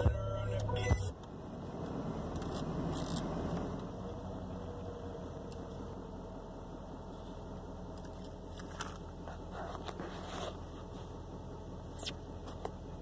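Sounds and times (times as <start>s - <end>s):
diesel engine idling: 3.8s - 13.0s.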